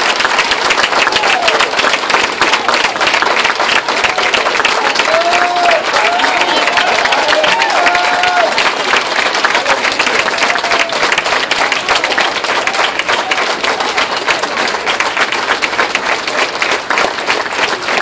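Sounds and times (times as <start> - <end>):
crowd applauding: 0.0 - 18.0
faint voices: 0.5 - 18.0.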